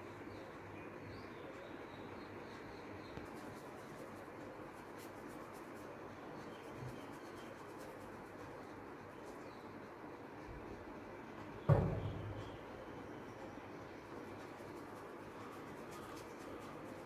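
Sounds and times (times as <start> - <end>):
paintbrush scratching on canvas: 3.2 - 9.4, 14.2 - 17.0.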